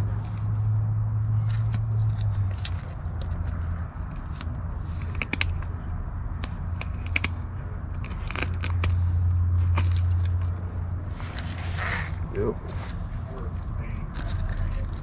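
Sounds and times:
low steady hum: 0.0s - 15.0s
knife cutting and scraping fish: 6.4s - 13.2s.

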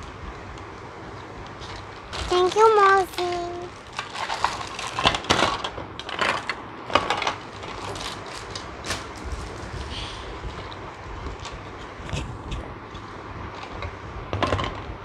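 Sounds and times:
plastic packaging crinkling: 1.7s - 10.8s
plastic toy pieces clattering: 2.2s - 9.6s.

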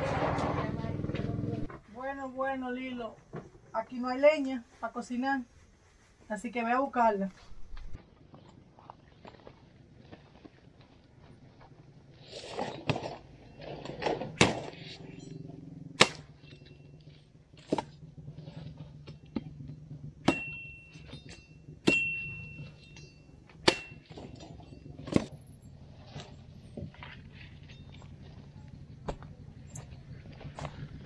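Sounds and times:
brush rustling: 4.0s - 8.0s
machete chopping sticks: 16.0s - 16.3s, 23.7s - 24.0s
metallic ring from blade: 20.3s - 24.2s.

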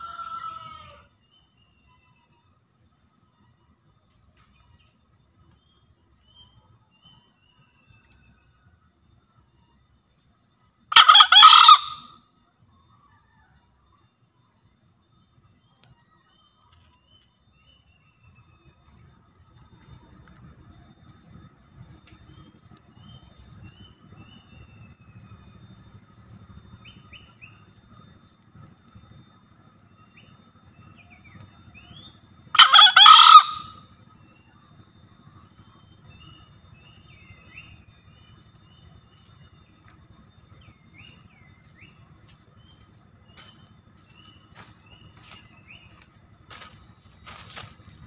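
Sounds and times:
junglefowl crowing: 0.0s - 1.1s, 10.9s - 12.2s, 32.5s - 33.9s
small birds chirping: 15.4s - 48.0s.

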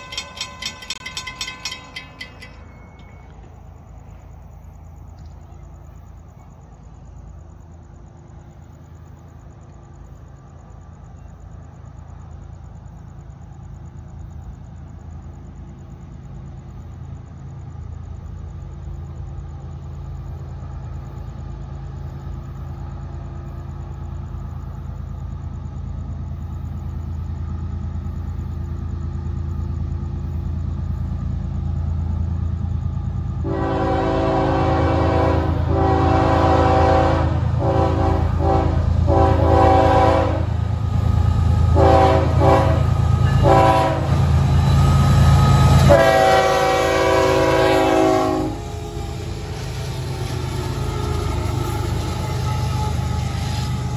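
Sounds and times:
diesel locomotive engine rumble: 0.0s - 53.9s
train air horn blasts: 33.4s - 40.6s, 41.6s - 53.9s.

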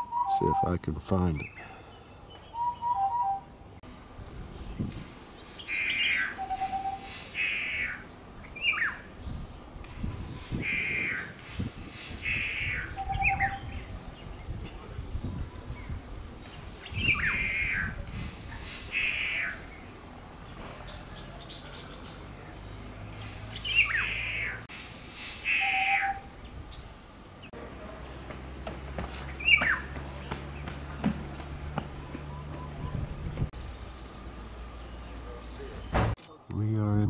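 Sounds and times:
bird harsh calls: 0.0s - 3.5s, 5.6s - 9.1s, 10.1s - 14.3s, 18.6s - 19.9s, 20.5s - 26.3s, 28.5s - 30.0s.

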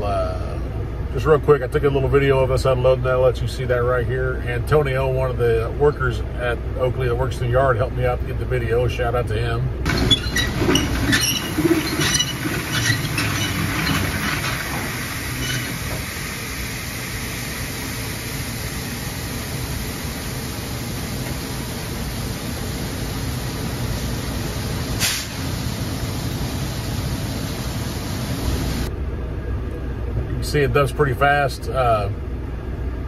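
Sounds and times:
low machinery rumble: 0.0s - 33.0s
beans pouring through grate: 9.9s - 15.9s
rattling and clicks: 9.9s - 16.1s.

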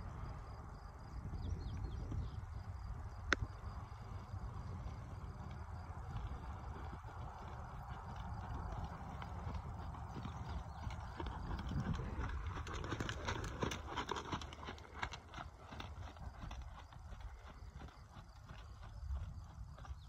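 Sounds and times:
horse hoofbeats on sand: 4.9s - 20.0s.

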